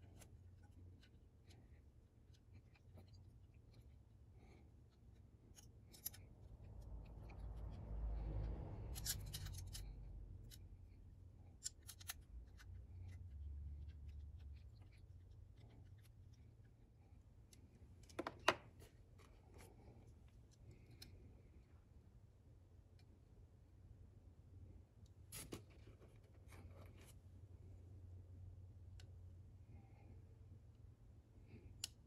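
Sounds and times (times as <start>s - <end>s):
low rumble: 6.5s - 11.2s
plastic parts clicking and tapping: 17.5s - 18.9s.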